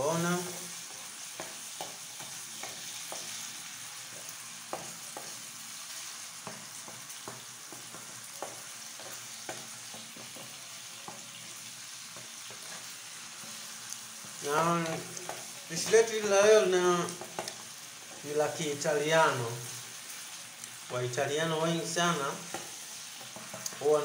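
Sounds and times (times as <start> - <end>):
tomatoes sizzling in hot oil: 0.0 - 24.0
wooden spoon knocking against pan: 1.3 - 3.4, 4.1 - 5.4, 6.4 - 11.3, 22.5 - 23.8.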